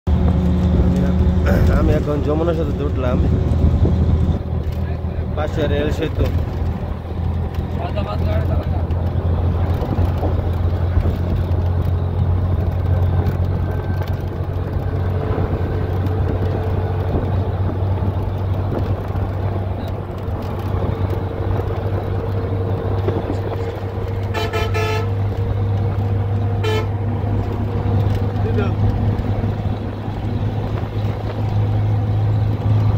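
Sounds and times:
vehicle road rumble: 0:00.0 - 0:32.9
vehicle horn honking: 0:24.2 - 0:25.2, 0:26.6 - 0:27.0.

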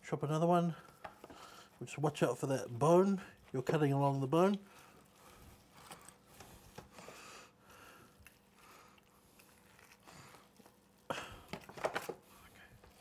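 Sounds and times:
knife cutting ham: 0:07.9 - 0:10.8.

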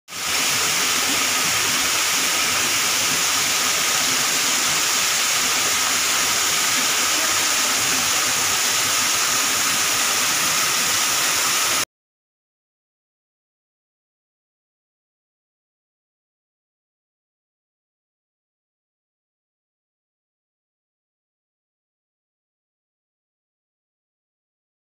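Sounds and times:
waterfall splashing into pool: 0:00.1 - 0:11.9.

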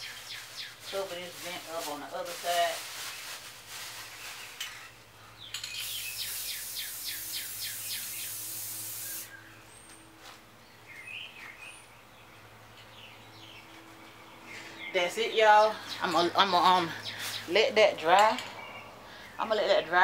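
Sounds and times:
birds chirping: 0:00.0 - 0:01.4, 0:04.1 - 0:20.0
spray paint can hissing: 0:05.8 - 0:09.3.

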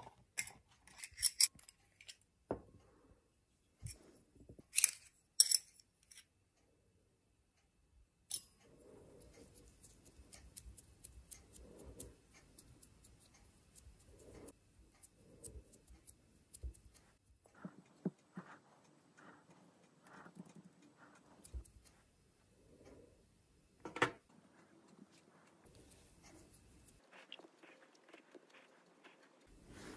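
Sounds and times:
fingers rubbing dough into tin: 0:08.8 - 0:22.1, 0:24.3 - 0:29.9.

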